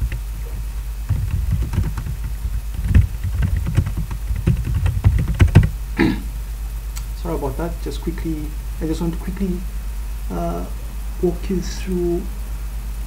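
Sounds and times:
steady low hum: 0:00.0 - 0:13.0
computer keyboard typing: 0:01.1 - 0:05.7.

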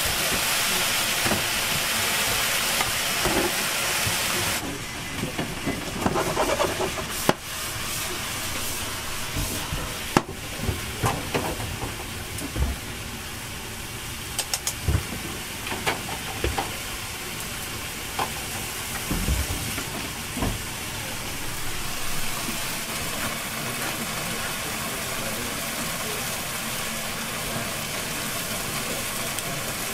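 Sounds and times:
steady hiss: 0:15.4 - 0:29.9.

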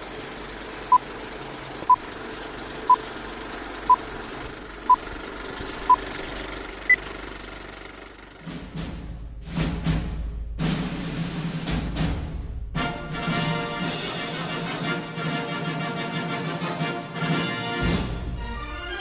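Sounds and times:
film projector clatter: 0:00.0 - 0:08.6.

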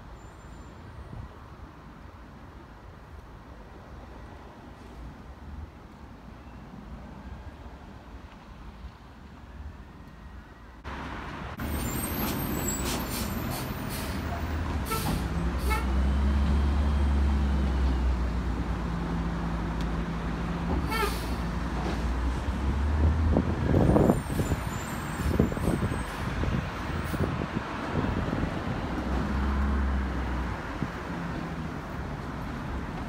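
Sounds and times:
air-brake hisses: 0:11.7 - 0:15.3.

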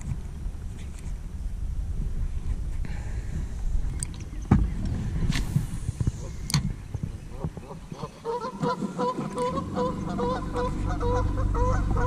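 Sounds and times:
low steady hum: 0:00.0 - 0:12.0
geese honking: 0:07.6 - 0:12.0.

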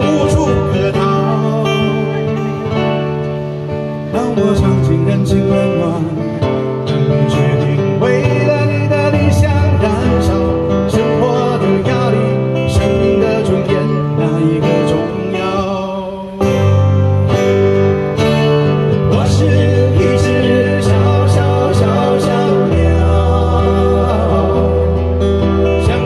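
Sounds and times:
men singing a duet: 0:00.0 - 0:02.4, 0:07.1 - 0:16.5, 0:19.0 - 0:26.0
acoustic guitars strummed: 0:00.0 - 0:26.0.

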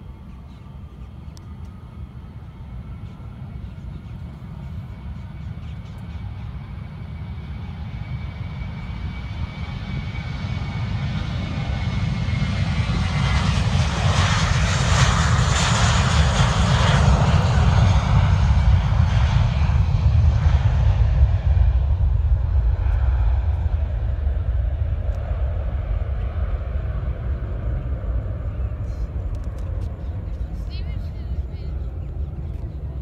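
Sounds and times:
jet engines roaring at takeoff: 0:00.0 - 0:33.0
deep rumble: 0:08.9 - 0:33.0.

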